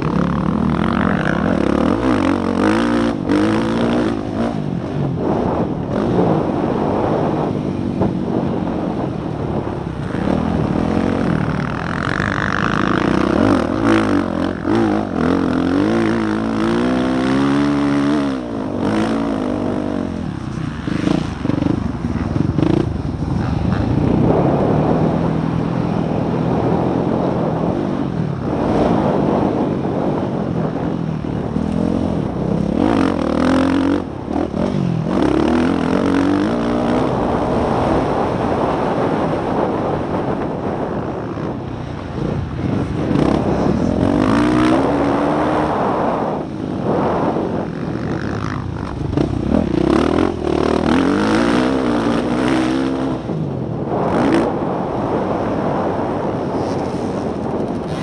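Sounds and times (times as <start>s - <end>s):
dirt bike engine revving: 0.0s - 27.8s, 28.4s - 39.9s, 42.3s - 58.0s
wind rushing over microphone: 0.0s - 58.0s.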